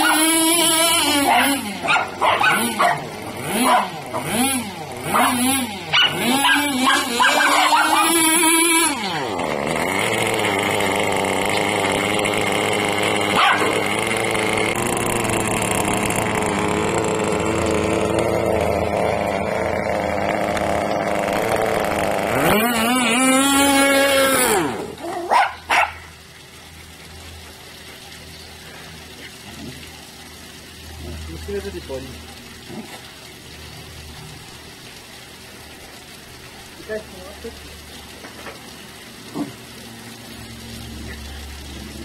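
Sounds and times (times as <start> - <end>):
rc car motor running: 0.0 - 26.1
dog crying: 1.0 - 4.3, 5.1 - 8.6, 13.4 - 13.8, 24.5 - 26.0
dog barking: 1.3 - 4.0, 5.1 - 8.2, 13.4 - 13.7, 25.2 - 26.1.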